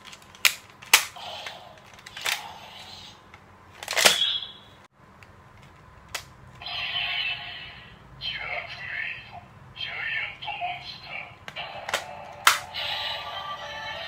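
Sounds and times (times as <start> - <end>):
electronic toy sound effect: 6.6 - 14.0.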